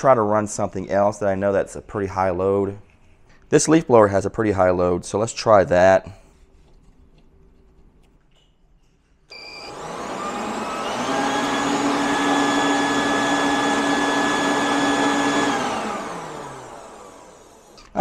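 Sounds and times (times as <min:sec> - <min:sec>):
leaf blower motor whine: 0:09.3 - 0:18.0.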